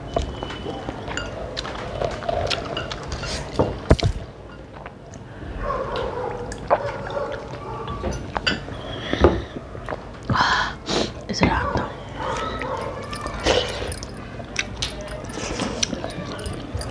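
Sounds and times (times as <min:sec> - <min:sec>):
dishes clicking and knocking: 0:12.6 - 0:16.9.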